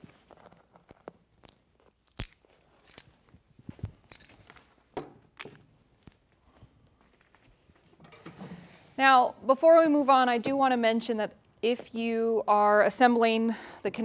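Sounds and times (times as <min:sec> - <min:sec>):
metal tools clinking: 0:00.3 - 0:03.2, 0:05.3 - 0:08.4.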